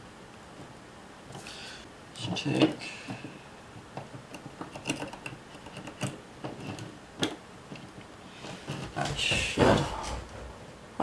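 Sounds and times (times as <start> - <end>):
screwdriver clicking on metal: 4.0 - 7.4.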